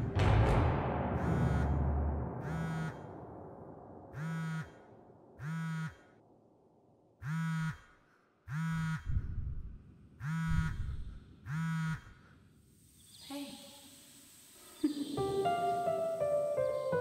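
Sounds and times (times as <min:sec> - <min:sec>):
deep rumble: 0:00.0 - 0:05.4, 0:09.1 - 0:09.9
low buzzing tone blasts: 0:00.0 - 0:06.2, 0:08.5 - 0:12.2.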